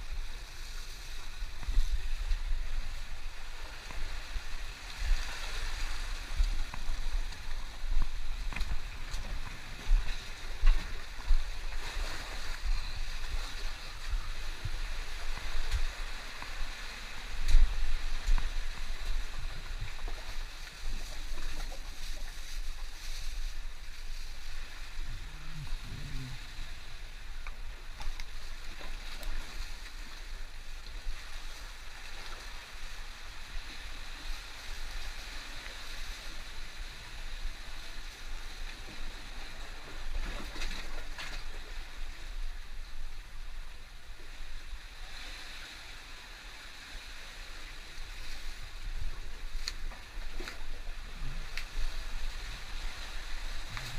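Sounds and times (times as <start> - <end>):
sea water washing on rocks: 0.0 - 53.9
wind buffeting microphone: 23.5 - 27.0.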